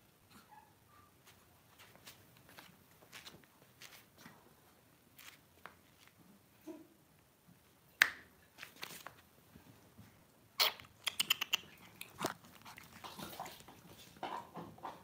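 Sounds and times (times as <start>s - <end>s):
puppies' claws clicking on tiles: 10.9s - 15.0s.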